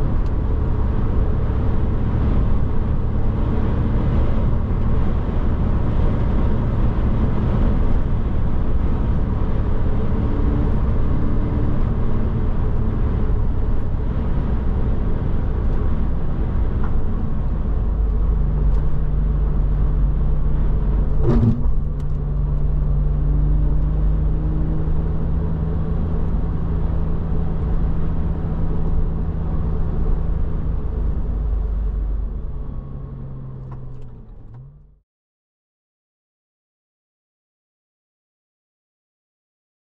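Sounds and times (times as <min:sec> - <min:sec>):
car engine running: 0:00.0 - 0:24.5
tyre and road noise: 0:00.0 - 0:25.1.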